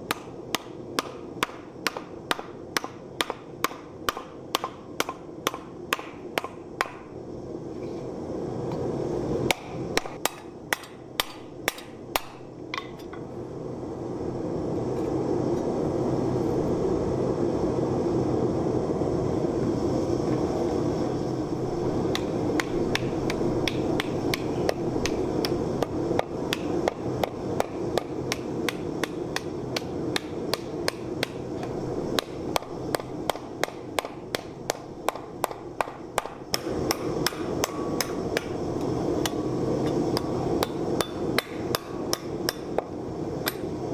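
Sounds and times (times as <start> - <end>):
gas forge roaring: 0.0 - 43.9
hammer striking steel: 0.1 - 7.1, 9.5 - 13.2, 22.1 - 38.6, 39.2 - 43.6.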